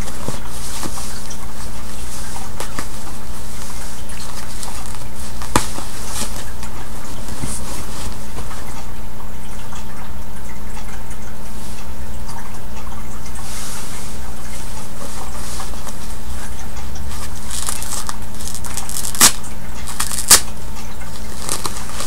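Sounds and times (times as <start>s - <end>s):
cloth and diaper rustling: 0.0s - 8.8s, 13.4s - 20.4s, 21.1s - 22.0s
electrical hum: 0.0s - 22.0s.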